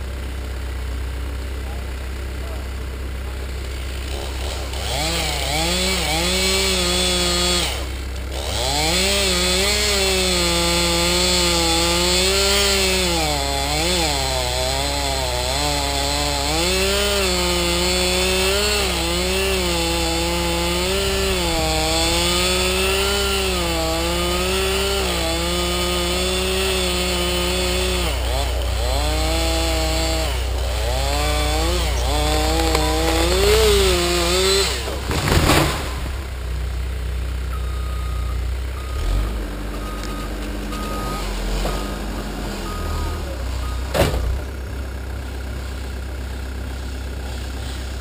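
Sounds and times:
loader engine idling low: 0.0 - 4.8, 35.9 - 48.0
chainsaw cutting wood: 3.7 - 36.6, 38.8 - 44.5, 46.7 - 48.0.

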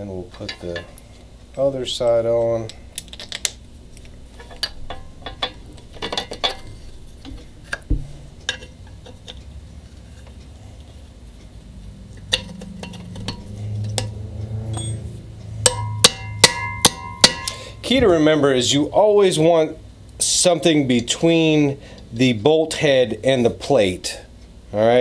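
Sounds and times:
hammer strikes on metal: 15.6 - 18.1.

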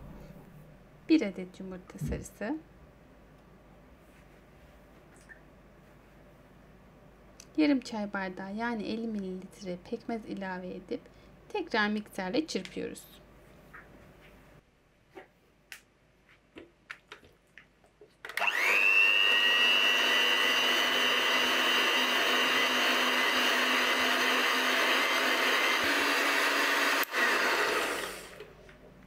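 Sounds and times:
electric hand mixer whining: 18.4 - 28.5.

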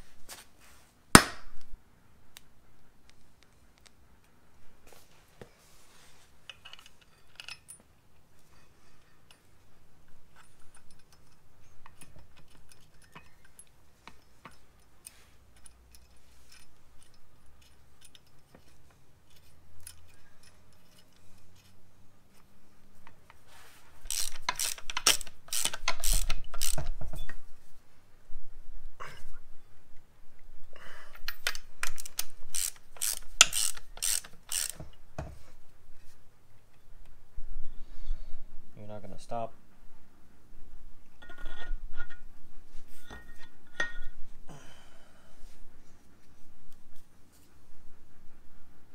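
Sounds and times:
metallic clinks and knocks: 6.5 - 22.4, 31.1 - 35.3, 41.1 - 44.4
socket ratchet clicking: 24.1 - 27.0, 31.3 - 34.8.

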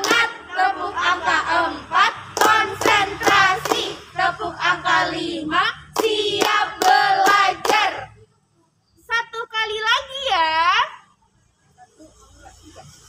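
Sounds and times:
women singing in unison: 0.0 - 8.2.

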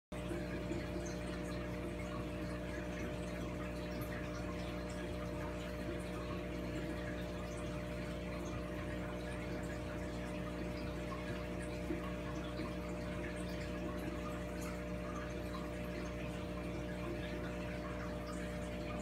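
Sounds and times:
aquarium pump humming: 0.2 - 19.0
moving water: 0.2 - 19.0.

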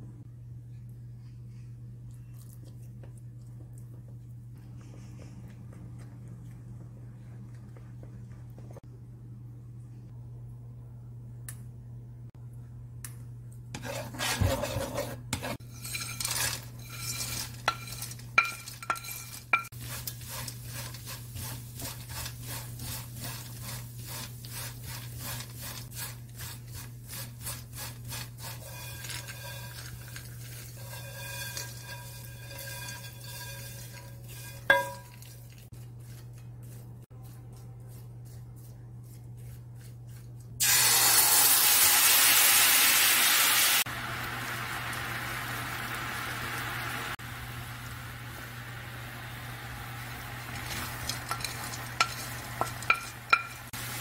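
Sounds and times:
steady low hum: 0.0 - 40.6
spatula scraping and rattling pan: 13.8 - 36.4, 50.4 - 54.0.

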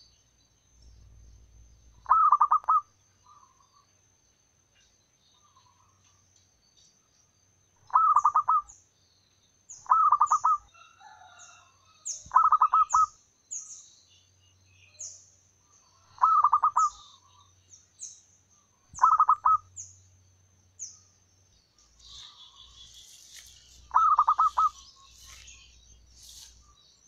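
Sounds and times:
small bird chirping: 0.0 - 4.1, 4.7 - 27.0
dove cooing: 2.0 - 3.6, 7.9 - 8.7, 9.9 - 10.6, 12.3 - 13.1, 16.1 - 17.0, 19.0 - 19.7, 23.9 - 25.6.

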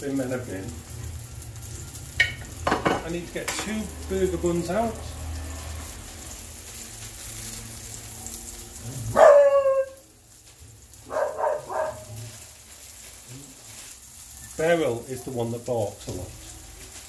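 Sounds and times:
burger sizzling in frying pan: 0.0 - 17.0
dog barking: 9.0 - 10.0, 11.0 - 12.3.

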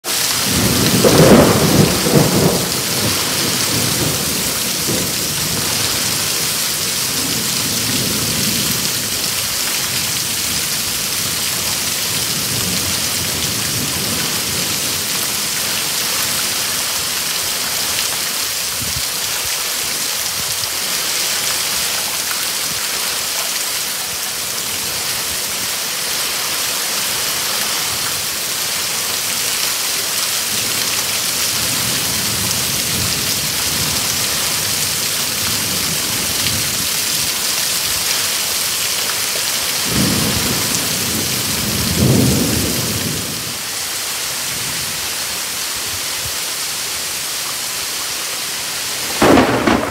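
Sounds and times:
heavy rain on pavement: 0.0 - 49.9
thunder rolling: 0.3 - 9.2, 49.1 - 49.9.

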